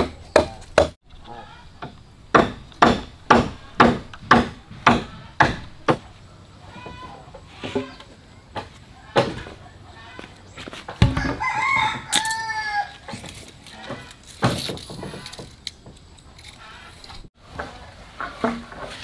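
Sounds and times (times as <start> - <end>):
rooster crowing: 11.1 - 13.0.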